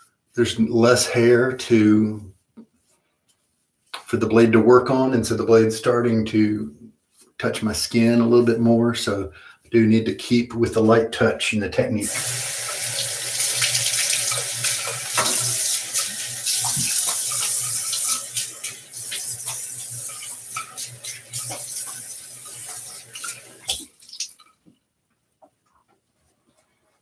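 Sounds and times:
tap running into a sink: 12.1 - 24.5
water splashed over face: 13.2 - 24.5.

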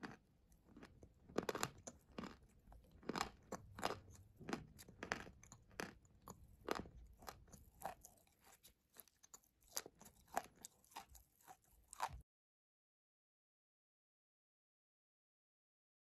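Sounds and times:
clay chewing crunches: 0.0 - 12.2.

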